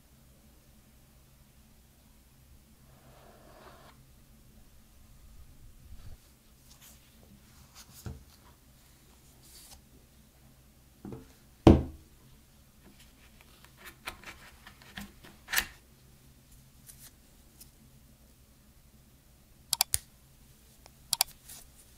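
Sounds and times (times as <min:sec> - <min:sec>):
sharp click: 0:19.7 - 0:20.0.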